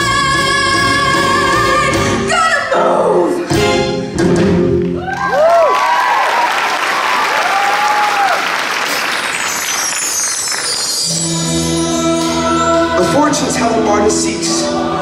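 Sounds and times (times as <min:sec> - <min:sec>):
audience applauding: 0:04.8 - 0:11.2
people whooping: 0:05.0 - 0:08.6.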